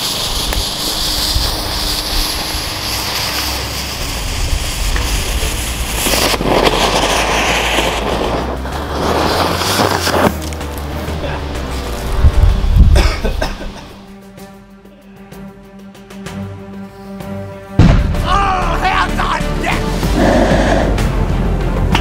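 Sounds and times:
flash powder burst: 0:00.0 - 0:10.4
fuse hissing and spitting: 0:00.0 - 0:14.1, 0:19.8 - 0:21.2.

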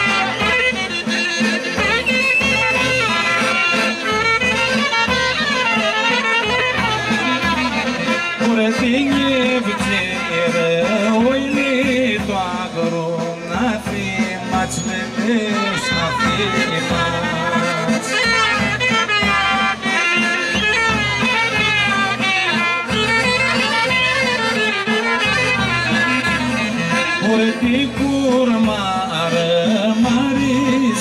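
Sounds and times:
folk dance music over loudspeakers: 0:00.0 - 0:31.0
person singing: 0:26.7 - 0:31.0.

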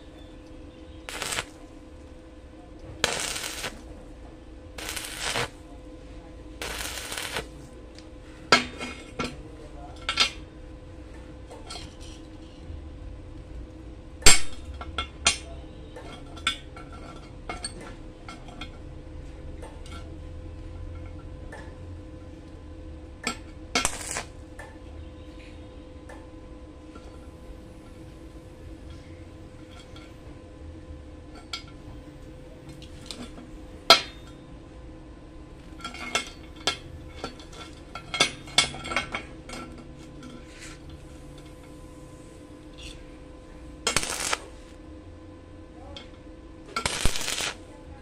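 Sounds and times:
faint steady hum: 0:00.0 - 0:48.0
welding arc crackling: 0:01.0 - 0:01.8, 0:03.0 - 0:03.9, 0:04.8 - 0:05.7, 0:06.6 - 0:07.6, 0:23.8 - 0:24.4, 0:43.9 - 0:44.8, 0:46.8 - 0:47.6.

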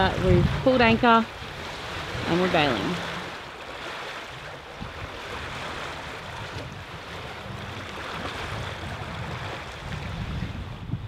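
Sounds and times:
choppy sea water washing: 0:00.0 - 0:11.0
wind buffeting microphone: 0:00.0 - 0:11.0.

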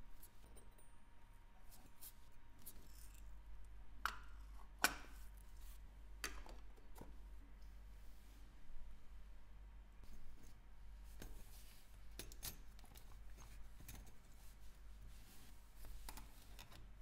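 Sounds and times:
tools tapping small metal parts: 0:12.2 - 0:14.1.

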